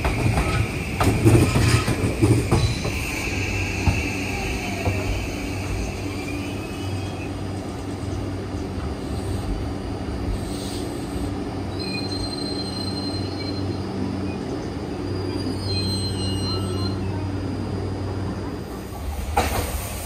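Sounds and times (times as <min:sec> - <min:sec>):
electric train humming: 0:00.0 - 0:20.0
high wheel squeal: 0:01.4 - 0:07.5, 0:11.7 - 0:13.9, 0:15.0 - 0:17.4.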